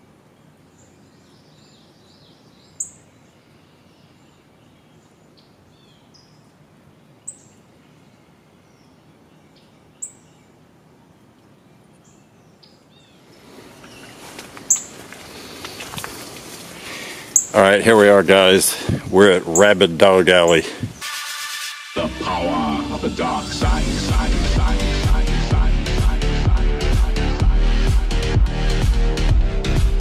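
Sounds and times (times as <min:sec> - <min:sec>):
faint bird chirps: 0:00.4 - 0:06.5
footsteps rustling through undergrowth: 0:13.2 - 0:18.9.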